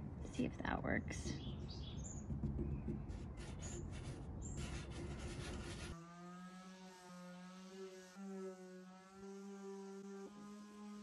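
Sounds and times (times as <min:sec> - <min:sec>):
hand rubbing wood: 0:02.2 - 0:06.0
electric sander humming: 0:05.8 - 0:11.0.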